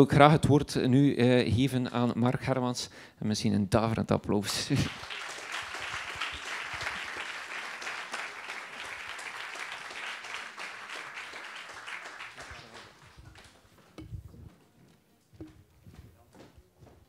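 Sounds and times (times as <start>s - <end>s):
audience applauding: 4.8s - 13.7s.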